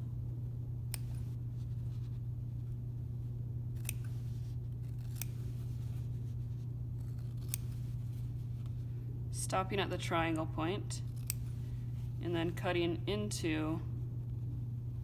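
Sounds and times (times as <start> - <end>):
steady low hum: 0.0 - 15.0
scissors snipping fabric: 0.9 - 1.3, 3.7 - 6.0, 7.0 - 8.0, 11.1 - 11.5.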